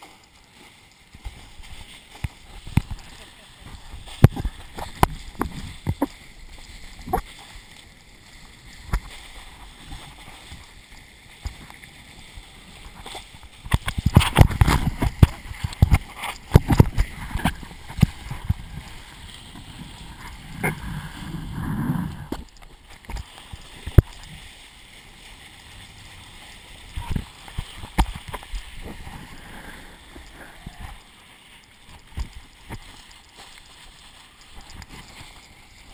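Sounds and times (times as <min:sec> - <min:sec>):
board slapping water: 0:00.0 - 0:35.9
wind noise: 0:01.2 - 0:07.6, 0:08.4 - 0:24.5, 0:25.8 - 0:31.0.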